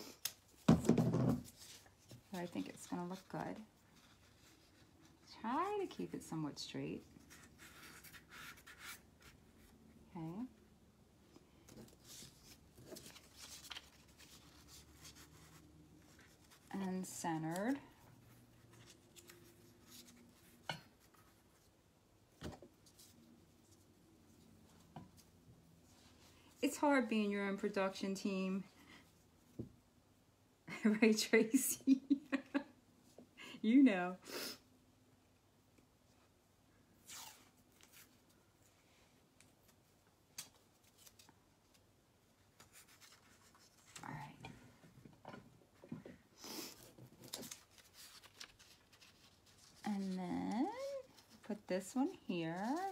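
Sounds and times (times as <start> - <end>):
paper strips handling: 11.6 - 21.3, 47.2 - 52.9.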